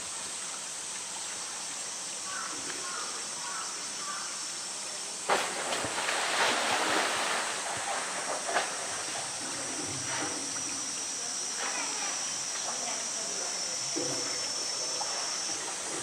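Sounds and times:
heavy splash into water: 0:05.2 - 0:10.4
churning slapping water: 0:05.3 - 0:16.0.

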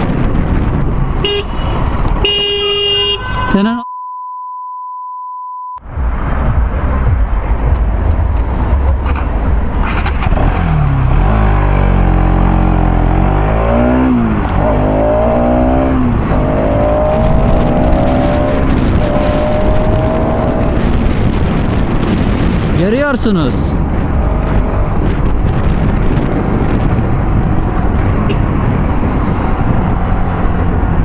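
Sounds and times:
wind rush: 0:00.0 - 0:02.3, 0:05.8 - 0:31.0
high bleep tone: 0:03.3 - 0:05.8
motorcycle engine pulling away: 0:09.8 - 0:22.2.

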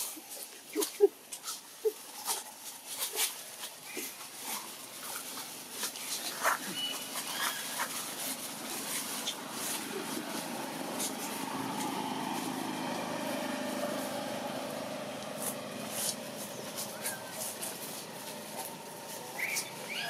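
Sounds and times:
vehicle engine passing: 0:04.4 - 0:20.0.

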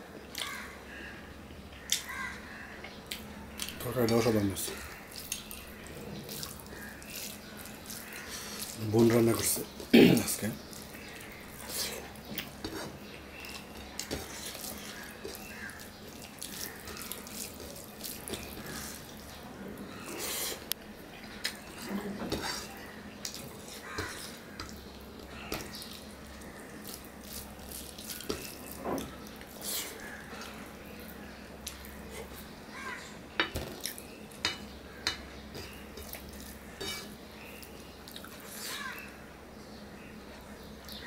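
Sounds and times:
wet chewing and lip-smacking: 0:38.0 - 0:38.5.

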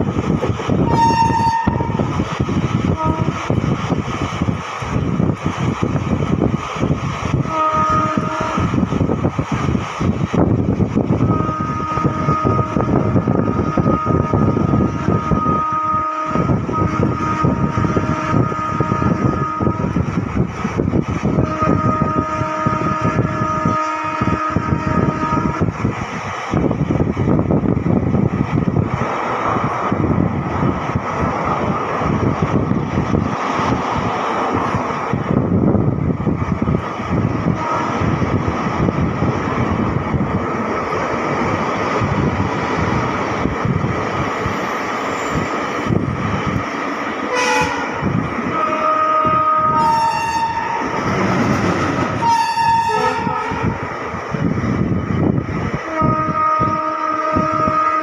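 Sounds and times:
train rumbling: 0:00.0 - 0:58.0
wheels rattling on track: 0:00.0 - 0:58.0
train horn blasts: 0:00.8 - 0:02.1, 0:03.0 - 0:03.4, 0:07.4 - 0:08.8, 0:11.2 - 0:20.1, 0:21.3 - 0:25.8, 0:37.5 - 0:38.2, 0:47.3 - 0:51.0, 0:52.2 - 0:53.8, 0:55.9 - 0:58.0.

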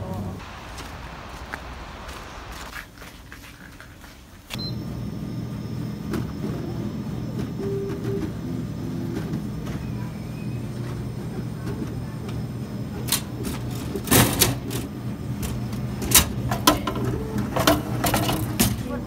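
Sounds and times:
vending machine motor whining: 0:04.6 - 0:19.0.

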